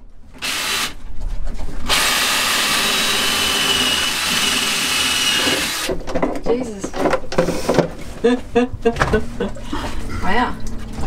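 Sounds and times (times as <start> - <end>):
cordless drill whining: 0.4 - 1.0, 1.8 - 5.9.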